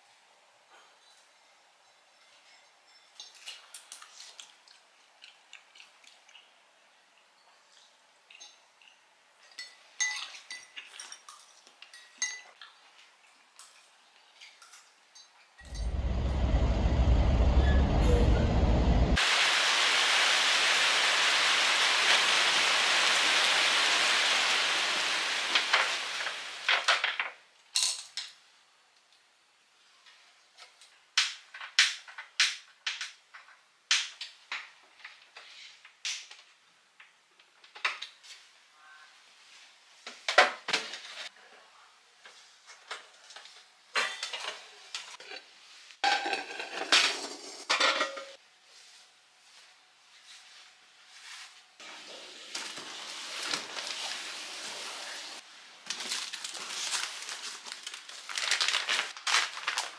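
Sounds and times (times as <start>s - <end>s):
metallic ringing: 15.6s - 18.8s
steady rain falling: 19.2s - 26.8s
metal pots clanking and scraping: 44.0s - 48.4s.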